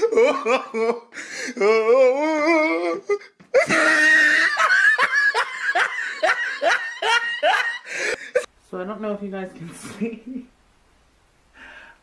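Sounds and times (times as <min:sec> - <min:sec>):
person laughing: 0:00.0 - 0:01.1, 0:03.5 - 0:08.5
person shrieking: 0:01.6 - 0:04.7.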